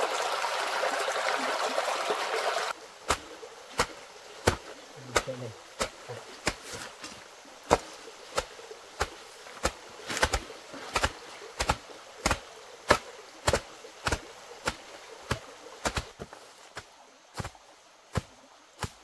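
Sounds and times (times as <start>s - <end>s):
hard chopping strikes: 3.0s - 6.9s, 7.7s - 16.2s.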